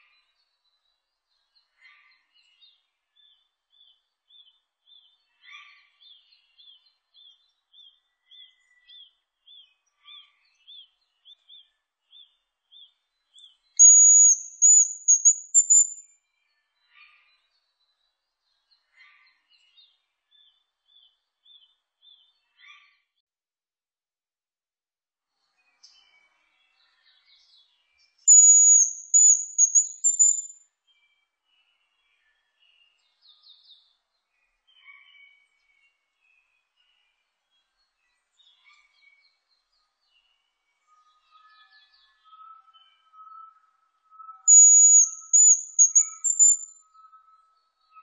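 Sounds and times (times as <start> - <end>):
bird whistled song: 13.4 - 16.1, 28.2 - 30.6, 41.2 - 48.0
faint short chirps: 13.8 - 16.0, 28.3 - 30.6, 44.5 - 46.7.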